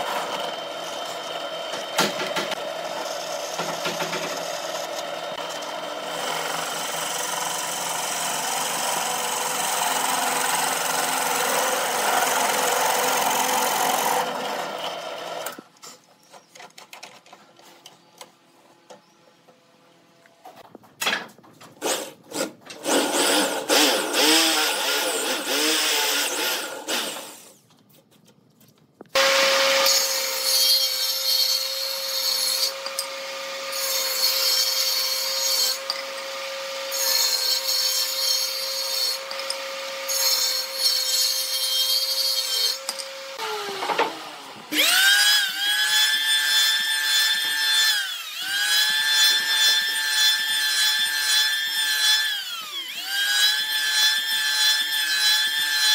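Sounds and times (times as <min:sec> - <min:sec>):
electric planer whining: 0:00.0 - 0:15.6, 0:22.8 - 0:27.4, 0:29.2 - 0:30.4, 0:42.5 - 0:55.9
hand drill boring into wood: 0:00.0 - 0:15.6, 0:21.8 - 0:27.6, 0:29.2 - 0:55.9
table saw humming: 0:00.0 - 0:15.6, 0:29.2 - 0:55.9.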